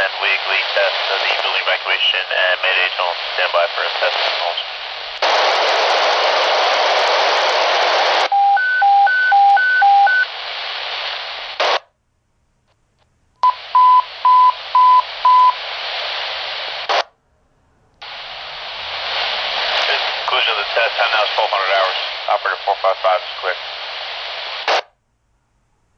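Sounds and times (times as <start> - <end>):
radio static hiss: 0.0 - 8.3, 9.9 - 11.9, 13.4 - 17.1, 18.0 - 24.9
pager beeps: 8.3 - 10.2.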